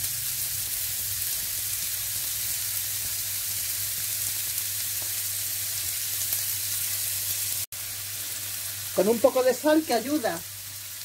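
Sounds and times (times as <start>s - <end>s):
onion and garlic sizzling in oil: 0.0s - 11.0s.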